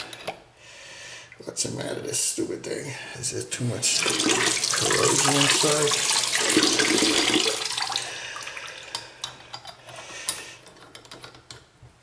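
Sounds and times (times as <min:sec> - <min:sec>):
water running from faucet into sink: 0:03.8 - 0:08.8.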